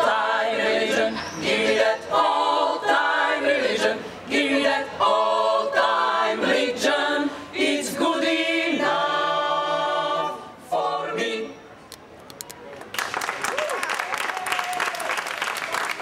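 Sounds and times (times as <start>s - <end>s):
women's choir singing a cappella: 0.0s - 11.7s.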